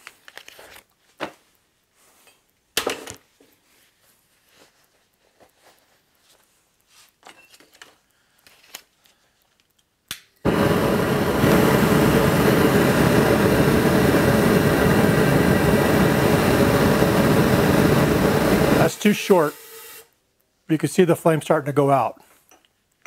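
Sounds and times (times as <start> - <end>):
glove rustles: 3.2 - 9.2
gas burner roaring: 10.4 - 20.1.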